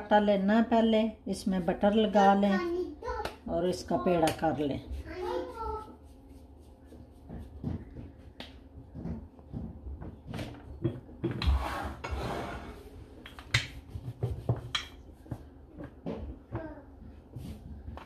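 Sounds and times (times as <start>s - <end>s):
dough handling clicks and knocks: 4.1s - 11.6s, 13.2s - 18.0s
rubbing rustling sound: 4.8s - 8.3s.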